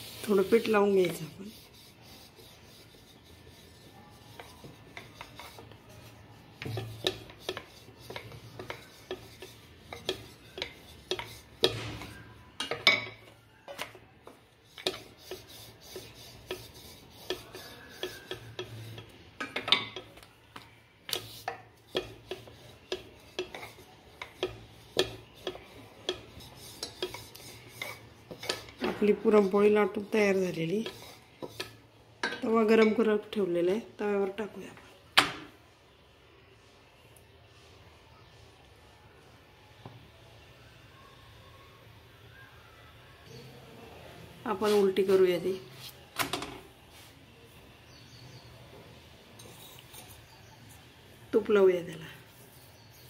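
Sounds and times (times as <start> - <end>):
rolling pin rubbing dough: 0.0 - 32.0, 49.4 - 53.0.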